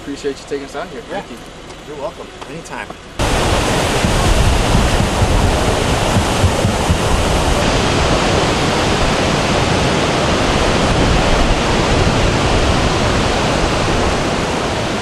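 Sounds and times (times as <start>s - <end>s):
deep rumble: 2.2s - 15.0s
waterfall rushing: 3.2s - 15.0s.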